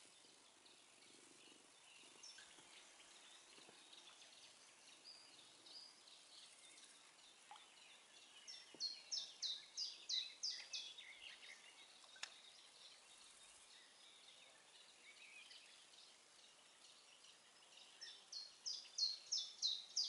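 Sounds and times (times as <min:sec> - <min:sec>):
background birdsong: 0:00.0 - 0:20.0
songbird singing: 0:00.0 - 0:20.0
sharp click: 0:12.0 - 0:12.4.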